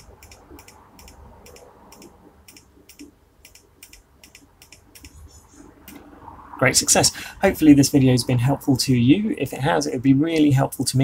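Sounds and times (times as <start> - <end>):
hard disk drive ticking: 0.0 - 6.0.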